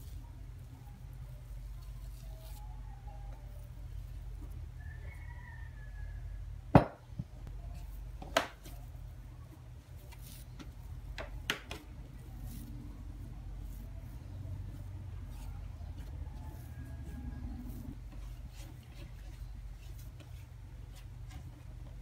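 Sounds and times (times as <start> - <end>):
dough kneaded by hand: 0.0 - 5.4, 6.8 - 22.0
low steady hum: 0.0 - 22.0
cutting board knocking on table: 6.8 - 7.0.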